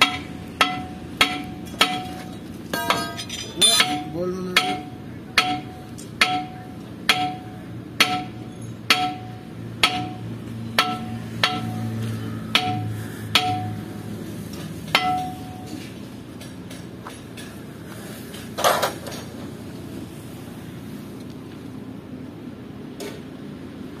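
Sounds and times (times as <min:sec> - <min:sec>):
hammer striking metal: 0:00.0 - 0:13.9, 0:14.9 - 0:17.6.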